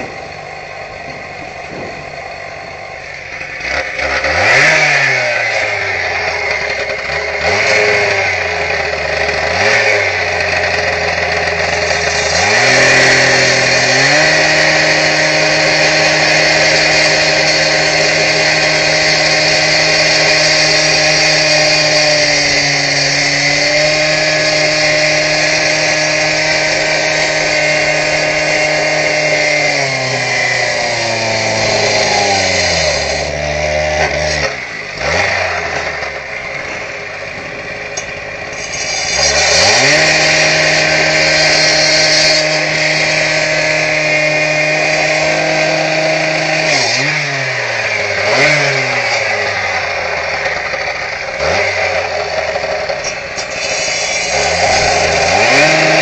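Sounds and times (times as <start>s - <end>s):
power masonry saw cutting brick: 0.0s - 56.0s.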